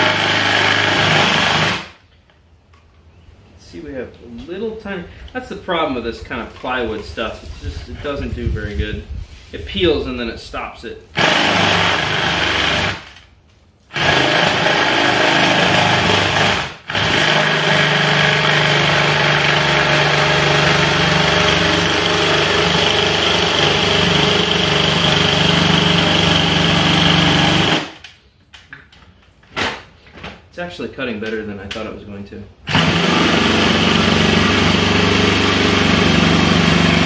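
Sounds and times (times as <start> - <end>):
saw blade cutting plywood: 0.0 - 1.9, 14.0 - 28.0, 32.7 - 37.0.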